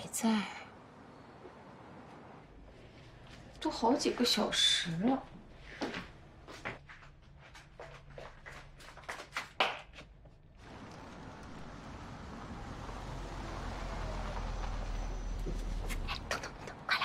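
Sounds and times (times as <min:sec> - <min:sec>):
footsteps in a room: 0:05.2 - 0:10.4
car engine and tyre noise: 0:10.6 - 0:16.9.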